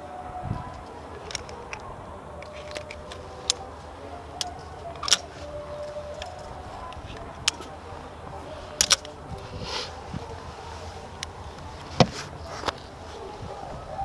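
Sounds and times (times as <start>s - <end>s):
carabiners clinking on steel cable: 8.7s - 9.2s.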